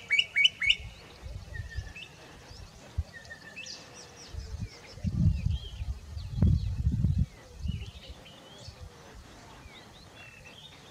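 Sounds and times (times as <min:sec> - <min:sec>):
bird whistled calls: 0:00.0 - 0:02.2.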